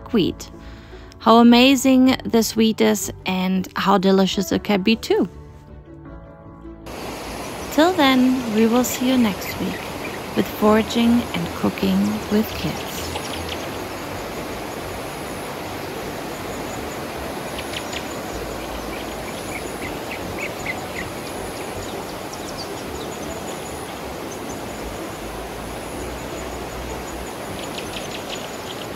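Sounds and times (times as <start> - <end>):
river rushing over rocks: 6.9 - 28.9.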